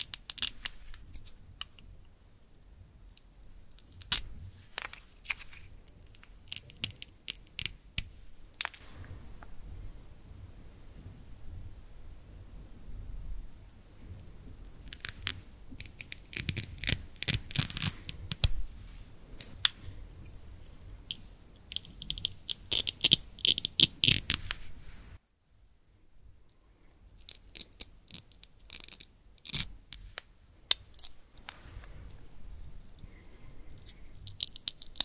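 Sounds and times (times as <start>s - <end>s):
velcro ripping apart: 14.8s - 18.6s.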